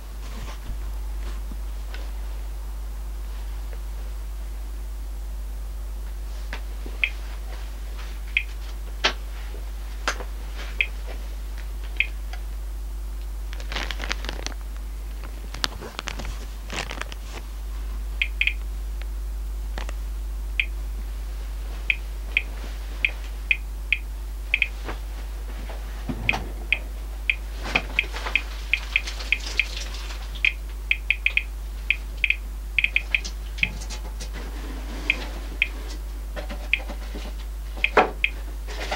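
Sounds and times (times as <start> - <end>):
steady low hum: 0.0 - 38.9
survey meter high beeps: 7.0 - 7.2, 18.2 - 18.6, 21.9 - 24.8, 30.4 - 33.3, 37.8 - 38.4
plastic bag rustling: 13.5 - 17.5.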